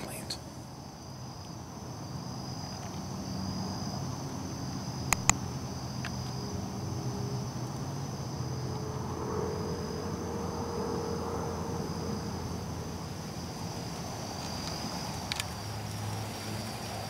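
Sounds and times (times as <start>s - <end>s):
airplane rumble: 0.0s - 17.0s
crickets trilling: 0.0s - 17.0s
sharp clicks: 5.1s - 5.4s.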